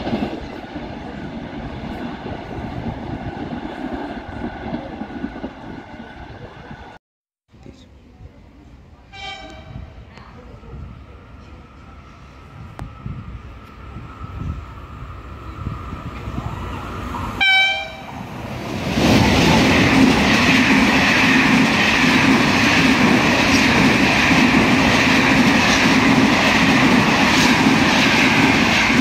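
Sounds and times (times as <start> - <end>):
train wheels rolling on rail: 0.0 - 7.0, 9.4 - 29.0
train horn blast: 9.1 - 9.9, 17.4 - 18.1.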